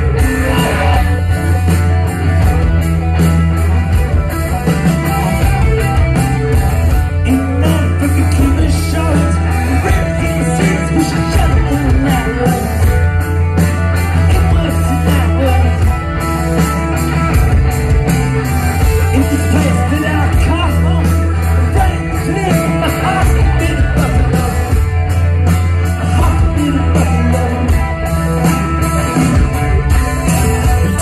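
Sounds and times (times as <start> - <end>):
man singing: 0.0 - 1.3, 7.2 - 13.0, 14.1 - 16.0, 19.0 - 24.9, 25.8 - 28.1
bass guitar: 0.0 - 31.0
drums: 0.0 - 31.0
electric guitars: 0.0 - 31.0.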